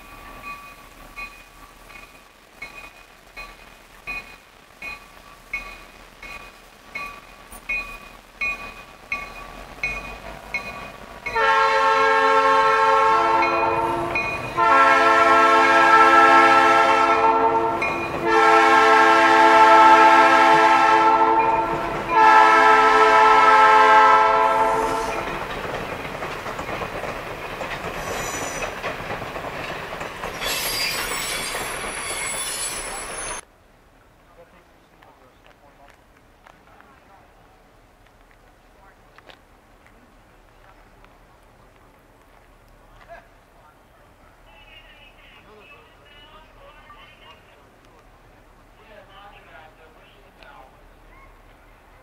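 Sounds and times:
train rumbling over rails: 0:00.0 - 0:52.0
train air horn blasts: 0:11.3 - 0:25.2.

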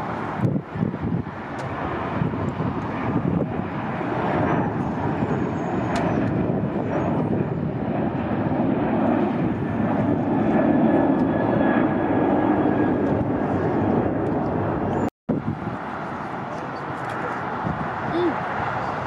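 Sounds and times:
jet engines roaring: 0:00.0 - 0:19.0.

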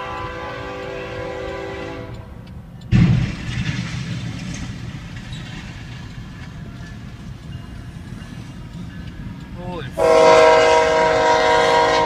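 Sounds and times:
heavy rumble of passing train: 0:00.0 - 0:12.0
loud crash: 0:02.9 - 0:05.8.

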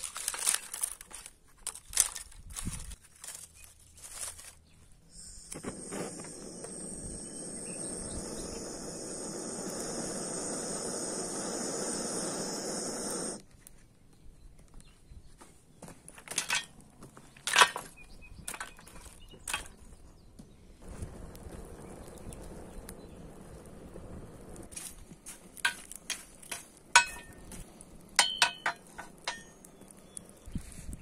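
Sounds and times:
blowtorch hissing: 0:05.1 - 0:13.4, 0:20.8 - 0:30.3.

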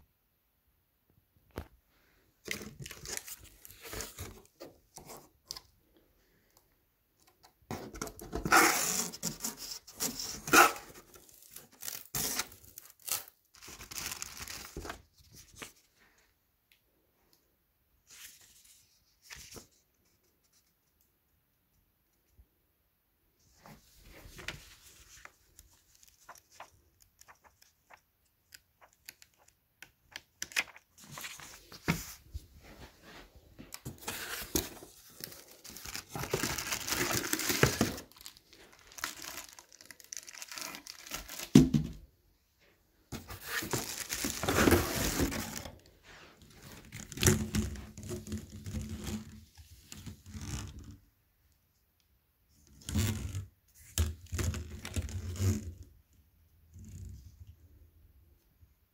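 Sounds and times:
plastic bags crinkling and tearing: 0:10.7 - 0:14.8, 0:34.1 - 0:41.6.

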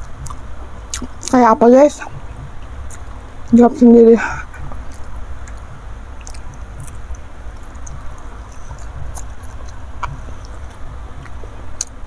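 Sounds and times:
low rumble: 0:00.0 - 0:11.9
wet chewing mouth smacks: 0:04.8 - 0:12.0.

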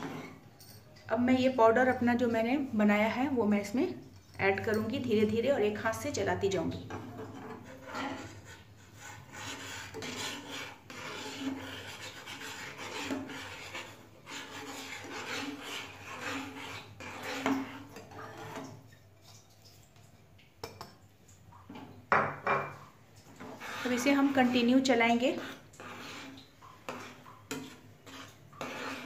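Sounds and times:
metal spatula scraping pan: 0:00.0 - 0:00.5, 0:06.8 - 0:18.9, 0:23.3 - 0:29.0.

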